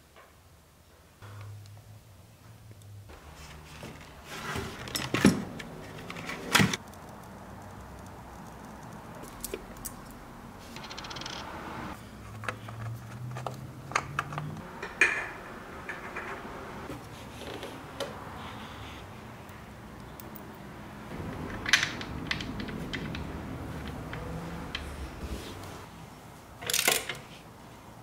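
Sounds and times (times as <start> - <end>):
tools clicking and scraping: 4.4 - 11.5, 21.2 - 25.2, 26.6 - 27.4.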